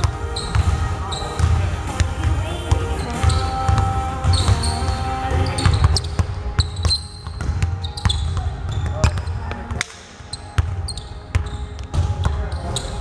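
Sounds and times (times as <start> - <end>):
basketballs bouncing on wooden floor: 0.0 - 13.0.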